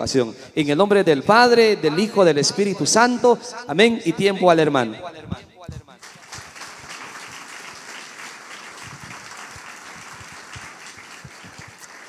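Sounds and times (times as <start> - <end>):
crowd applauding: 6.0 - 12.0.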